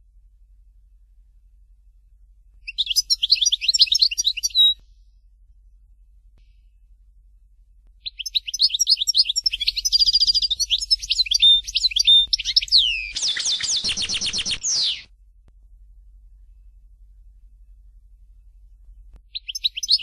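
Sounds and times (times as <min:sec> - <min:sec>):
goldfinch twittering song: 0:02.7 - 0:04.8, 0:08.0 - 0:15.1, 0:19.3 - 0:20.0.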